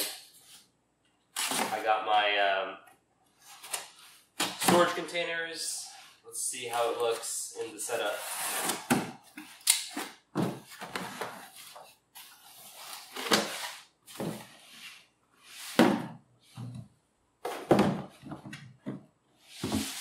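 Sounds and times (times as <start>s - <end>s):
cardboard rustling and scraping: 8.0s - 16.0s, 19.5s - 20.0s.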